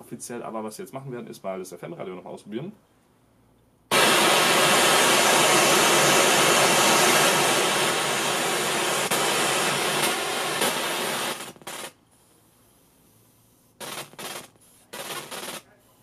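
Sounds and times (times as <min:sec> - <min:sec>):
radio static hiss: 0:03.9 - 0:12.0, 0:13.8 - 0:16.0.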